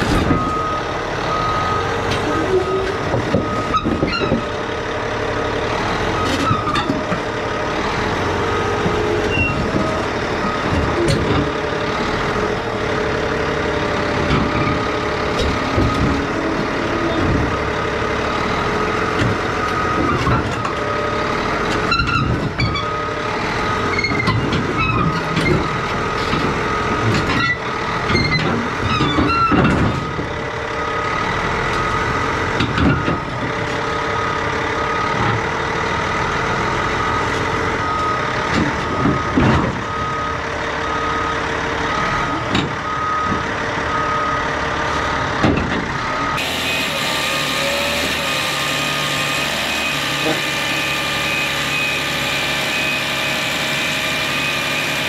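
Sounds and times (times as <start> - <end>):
loading machinery engine running: 0.0 - 55.0
reversing alarm beeping: 0.2 - 4.0, 37.0 - 42.2, 42.8 - 45.3, 46.2 - 55.0.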